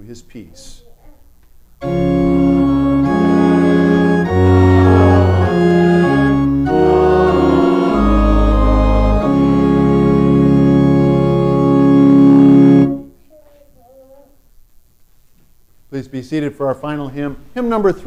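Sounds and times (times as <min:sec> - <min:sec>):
deep organ pedal bass notes: 0:01.8 - 0:13.1
church organ chords: 0:01.8 - 0:13.2.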